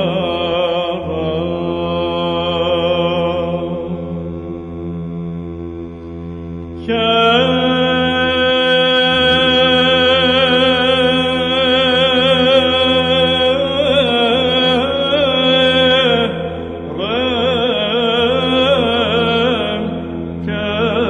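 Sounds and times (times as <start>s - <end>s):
low held vocal drone: 0.0s - 21.0s
solo chanter singing: 6.8s - 21.0s.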